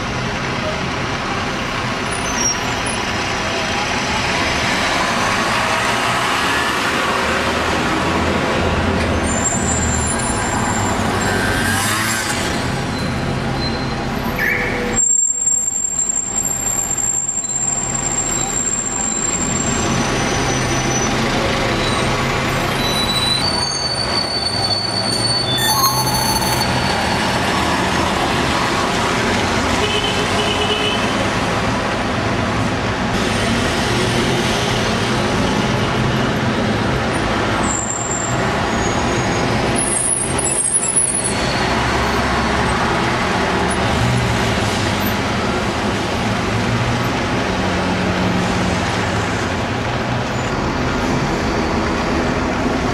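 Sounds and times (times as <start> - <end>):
diesel bus engines running: 0.0 - 11.5, 12.5 - 52.9
short high-pitched squeals: 12.8 - 27.0.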